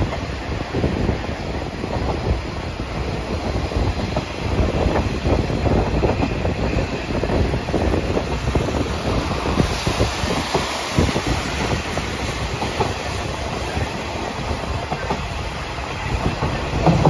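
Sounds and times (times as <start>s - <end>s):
train wheels rumbling on rails: 0.0s - 17.0s
clacks and knocks: 16.2s - 17.0s.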